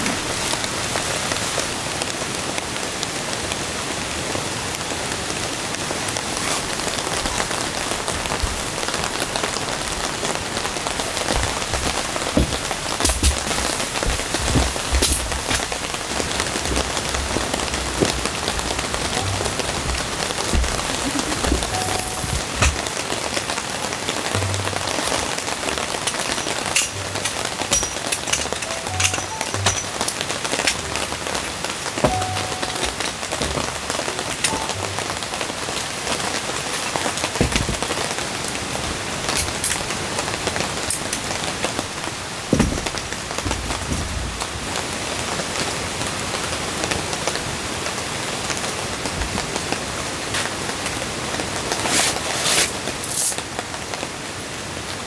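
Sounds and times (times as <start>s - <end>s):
rain falling on a tent: 0.0s - 55.0s
metal stands knocking and clicking: 11.7s - 15.8s, 20.6s - 22.8s, 26.1s - 30.8s.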